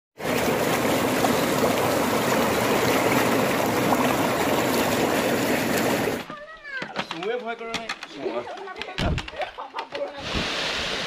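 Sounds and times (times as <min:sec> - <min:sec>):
stream rushing over stones: 0:00.2 - 0:06.3.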